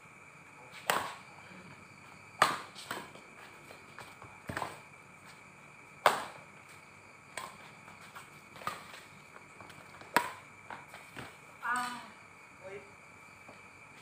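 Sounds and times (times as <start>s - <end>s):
racket hitting shuttlecock: 0.8s - 1.2s, 2.4s - 3.2s, 6.0s - 6.4s, 7.3s - 7.6s, 9.6s - 11.9s.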